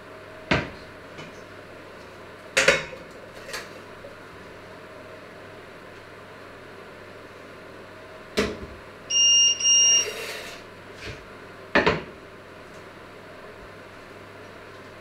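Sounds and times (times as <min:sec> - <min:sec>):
short electronic beeps: 0:09.1 - 0:10.2.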